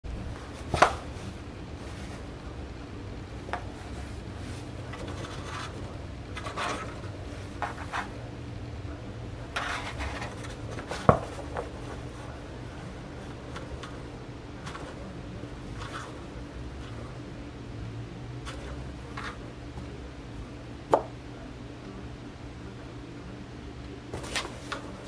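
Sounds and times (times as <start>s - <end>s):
faint low hum: 0.0s - 25.0s
claws scratching on cardboard: 9.5s - 12.1s.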